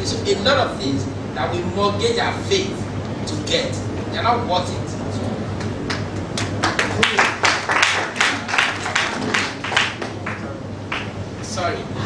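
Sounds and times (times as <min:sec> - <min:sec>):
audience applauding: 0:05.7 - 0:11.2.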